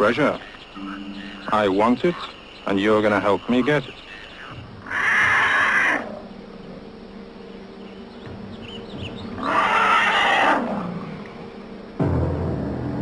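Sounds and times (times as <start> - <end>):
loud animal cries: 4.4 - 6.3, 9.4 - 11.2.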